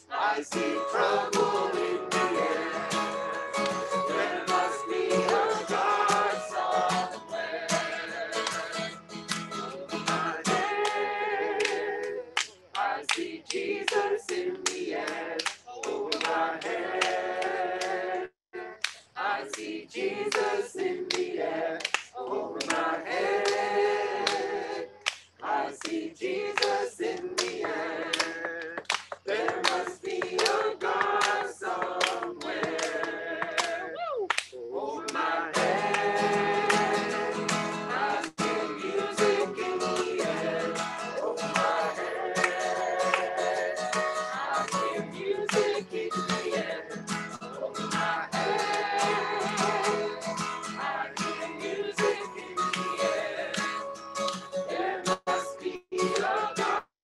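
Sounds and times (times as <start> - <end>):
people singing worship song: 0.0 - 53.9, 54.6 - 56.9
strummed acoustic guitar: 0.3 - 11.0, 35.4 - 56.8.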